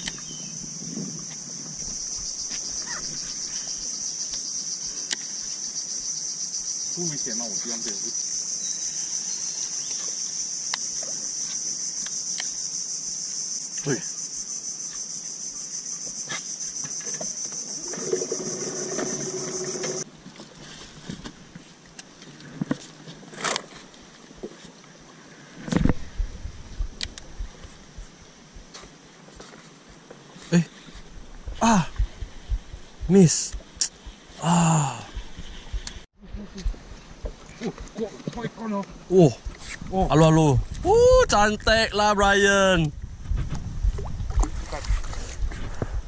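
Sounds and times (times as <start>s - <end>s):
high-pitched insect drone: 0.0s - 20.1s
soft water sounds: 42.9s - 46.0s.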